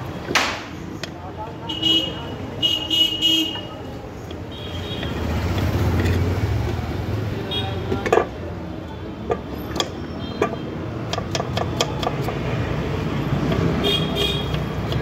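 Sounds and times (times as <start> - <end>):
street traffic rumble: 0.0 - 15.0
knife chopping on wooden board: 11.1 - 12.5.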